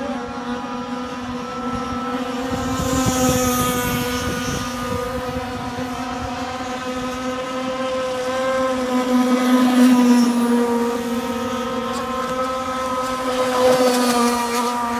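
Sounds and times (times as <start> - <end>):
high-pitched motor whine: 0.0 - 14.9.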